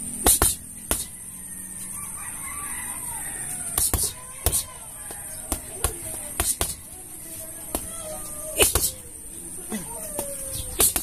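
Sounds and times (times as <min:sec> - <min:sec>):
gloves punching a bag: 0:00.2 - 0:01.2, 0:03.7 - 0:06.9, 0:07.6 - 0:09.0, 0:10.2 - 0:11.0
rooster crowing: 0:01.0 - 0:11.0.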